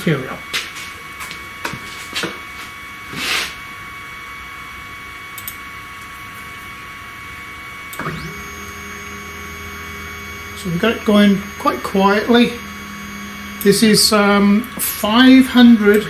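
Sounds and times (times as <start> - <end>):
stepper motor whine: 3.9 - 16.0
click: 5.4 - 5.6, 7.9 - 8.4
faint high whine: 7.8 - 16.0.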